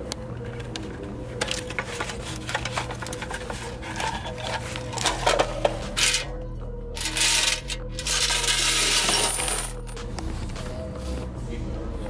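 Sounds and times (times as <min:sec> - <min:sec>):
steady electrical hum: 0:00.0 - 0:12.0
paper bills rustling: 0:01.4 - 0:05.4.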